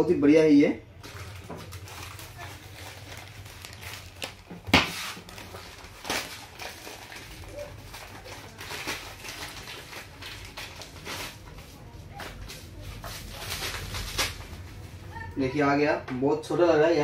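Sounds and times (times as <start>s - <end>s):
sharp plastic crackle: 1.0s - 15.0s
plastic bag crinkling: 1.0s - 15.2s.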